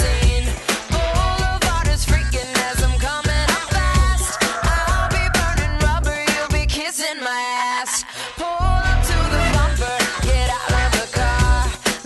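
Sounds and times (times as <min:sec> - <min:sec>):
heavy pulsing bass beat: 0:00.0 - 0:06.8
person singing: 0:00.0 - 0:12.0.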